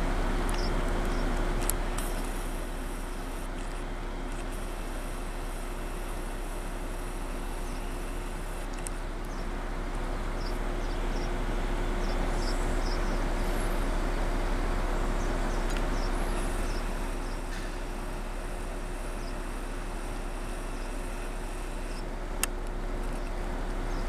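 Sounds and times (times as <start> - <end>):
faint low hum: 0.0 - 24.0
outdoor background noise: 0.0 - 24.0.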